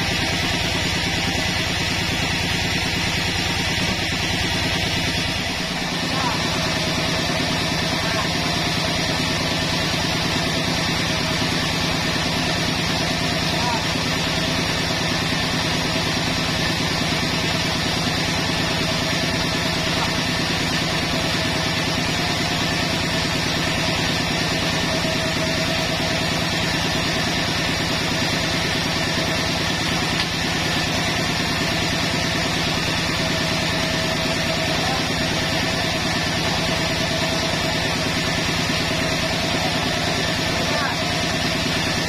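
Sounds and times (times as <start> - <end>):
motor pulsing: 0.0 - 42.0
sawmill saw cutting log: 0.0 - 42.0.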